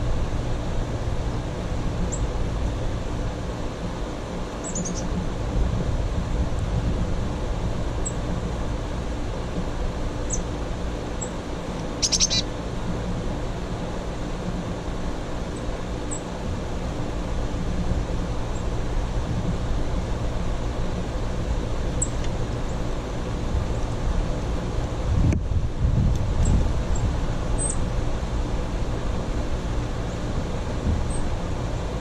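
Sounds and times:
steady low rumble: 0.0 - 32.0
songbirds chirping: 4.2 - 5.2, 10.2 - 12.7.

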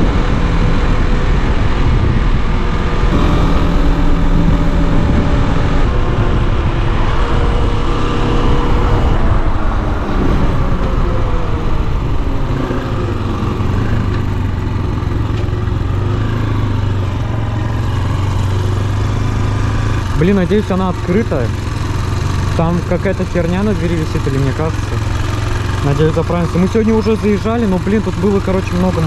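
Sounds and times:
wind rush: 0.0 - 14.9
motorcycle engine running: 0.0 - 29.0.

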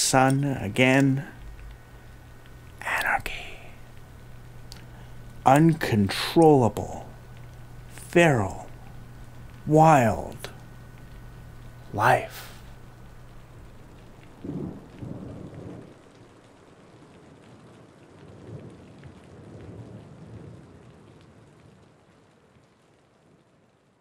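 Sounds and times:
steady rain: 0.0 - 24.0
thunder rolling: 14.3 - 16.1.

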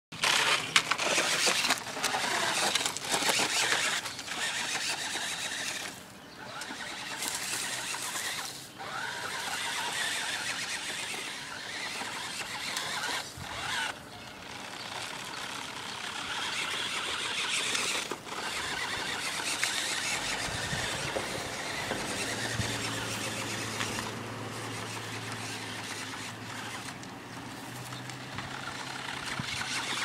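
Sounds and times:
electric rc car motor whining: 0.2 - 30.0
wheels hissing on paving: 0.2 - 30.0.

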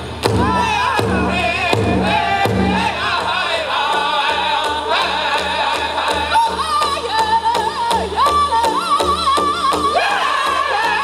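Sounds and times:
large drum beat: 0.0 - 11.0
group singing in high voices: 0.4 - 11.0.

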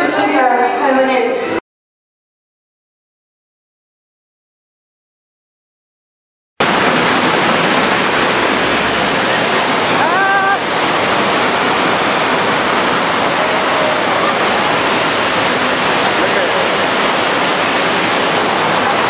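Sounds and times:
loud steady rushing noise: 6.6 - 19.0.

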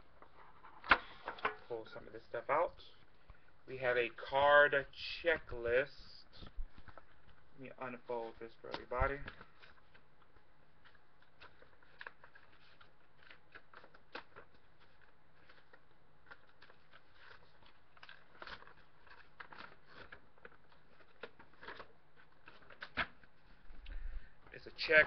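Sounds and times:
paper crinkling and rustling: 6.3 - 25.0.

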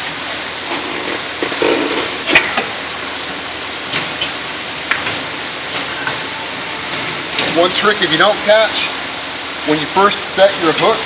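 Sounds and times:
tyre-changing machine running: 3.8 - 8.0.

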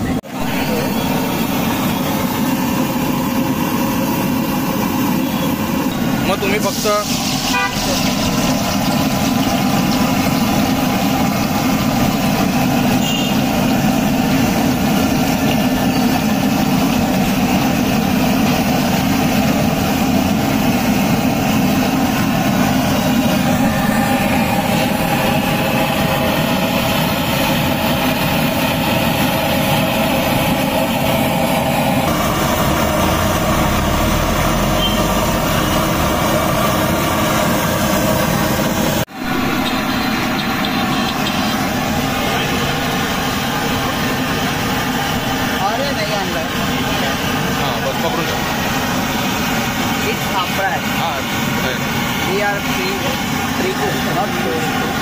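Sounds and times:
food deep-frying in oil: 0.6 - 30.8
steady low roar: 7.1 - 45.6.

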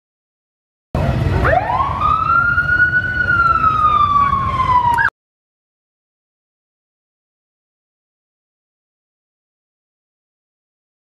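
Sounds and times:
siren wailing: 1.4 - 5.1.

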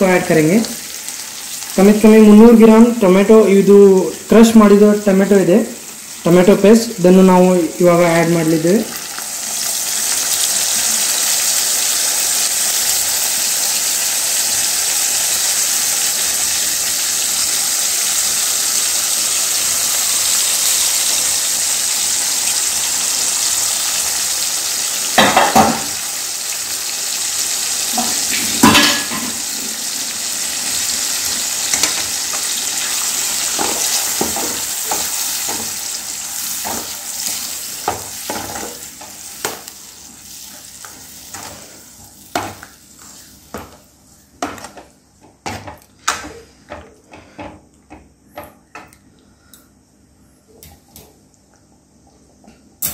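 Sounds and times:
vegetables sizzling in a pan: 0.0 - 44.8.

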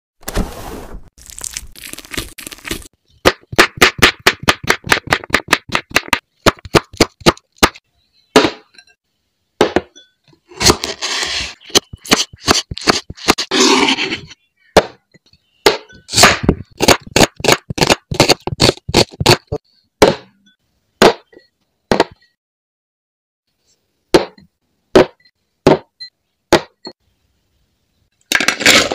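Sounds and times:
knife slicing and scraping: 0.2 - 2.9, 10.5 - 14.4
knife chopping on wooden board: 3.2 - 7.8, 11.7 - 13.5.

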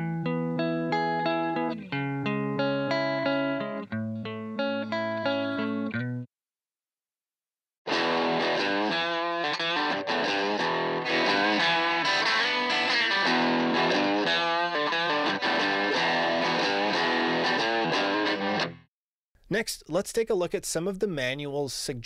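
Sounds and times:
distorted electric guitar lead: 7.9 - 18.9.

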